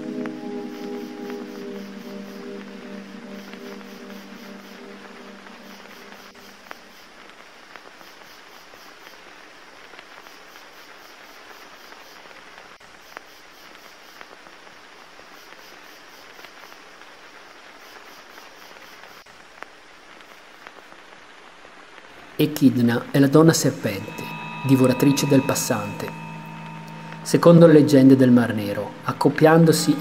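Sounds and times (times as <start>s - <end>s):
rain hiss: 0.0s - 30.0s
faint high chirping: 23.3s - 30.0s.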